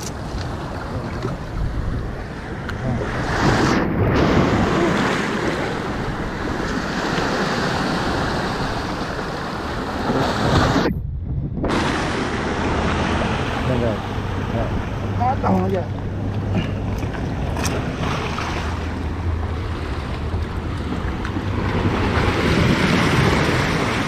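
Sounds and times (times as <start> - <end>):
wind rumbling on microphone: 0.0 - 24.0
surf breaking over rocks: 2.5 - 10.9, 11.6 - 14.5, 16.4 - 24.0.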